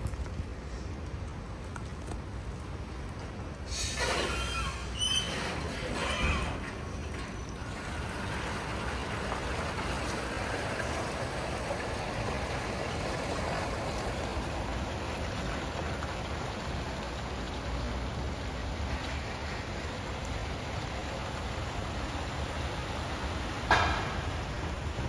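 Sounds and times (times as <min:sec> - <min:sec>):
electric truck driving hiss: 0:03.7 - 0:06.1.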